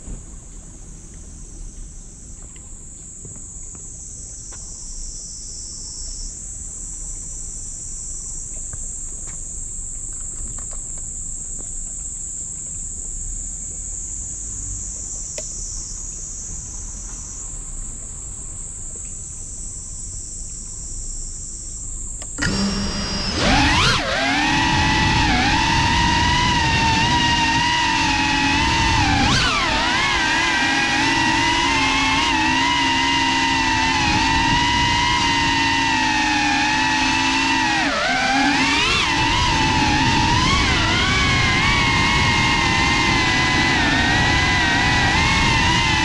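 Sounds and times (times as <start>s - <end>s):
drone motors throttling up: 0.0s - 46.0s
drone motors whining: 21.0s - 46.0s.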